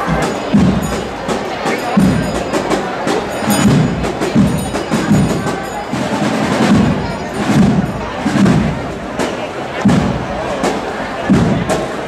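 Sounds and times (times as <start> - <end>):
sharp percussion ticks: 0.0 - 8.6
drums beating: 0.0 - 12.0
marching band playing: 0.0 - 12.0.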